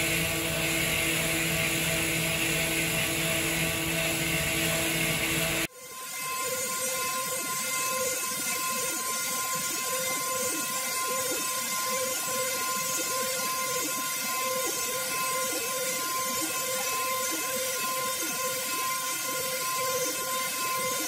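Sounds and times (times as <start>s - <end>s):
milling machine whine and hiss: 0.0s - 21.0s.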